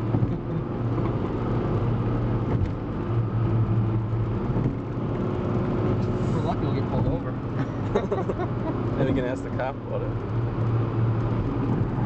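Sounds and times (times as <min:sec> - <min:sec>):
car engine drone: 0:00.0 - 0:12.0.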